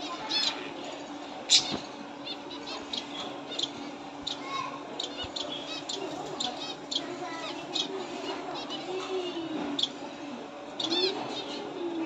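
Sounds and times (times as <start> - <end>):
finches chirping: 0.0 - 12.0.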